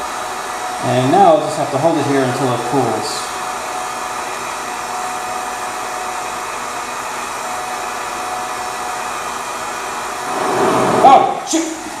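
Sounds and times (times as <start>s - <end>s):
heat gun blowing: 10.1s - 11.4s.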